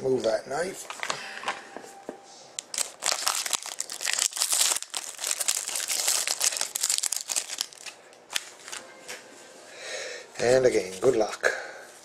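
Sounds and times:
foil wrapper crinkling: 2.6 - 8.8.

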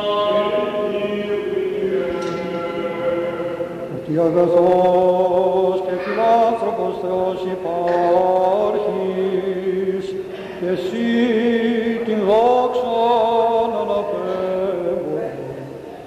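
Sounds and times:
person chanting a melodic line: 0.0 - 7.6
held vocal drone: 0.0 - 16.0.

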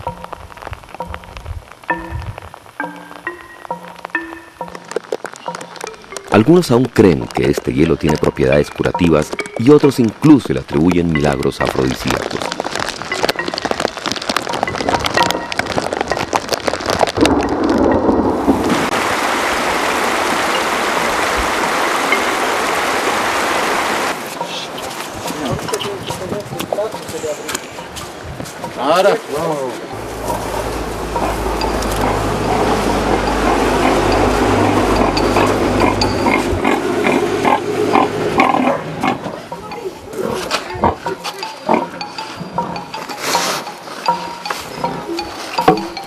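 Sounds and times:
crackling taps: 0.0 - 18.3
rushing water hiss: 17.2 - 26.2
low hum: 29.9 - 39.0
low rumble: 29.9 - 39.0
pigs grunting: 30.2 - 39.5.

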